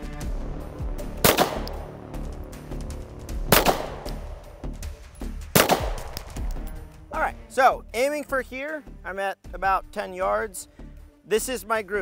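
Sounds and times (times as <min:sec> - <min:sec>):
background music: 0:00.0 - 0:12.0
handgun shots: 0:01.2 - 0:01.9, 0:03.5 - 0:04.4, 0:05.5 - 0:06.6.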